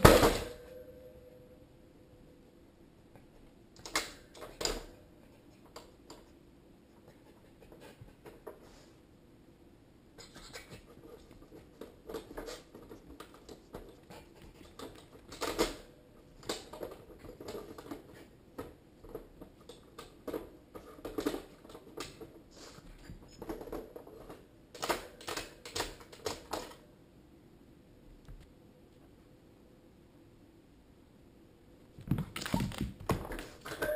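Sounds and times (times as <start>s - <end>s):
plastic cage clicks and rattles: 23.4s - 26.8s.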